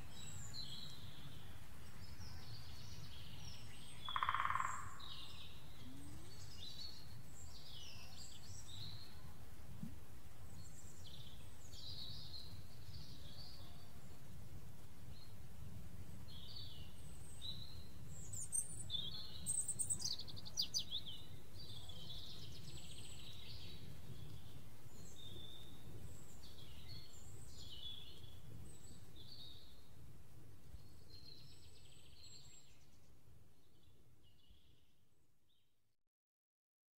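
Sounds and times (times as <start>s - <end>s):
birds chirping and trilling: 2.1s - 9.2s.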